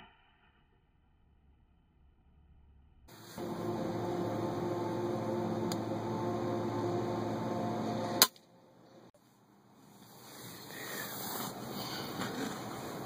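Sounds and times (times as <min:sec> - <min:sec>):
steady hum: 0:03.1 - 0:09.2.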